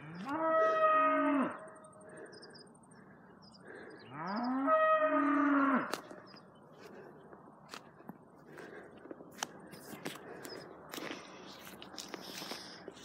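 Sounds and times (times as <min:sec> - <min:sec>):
cow mooing: 0:00.0 - 0:01.7, 0:04.1 - 0:06.0.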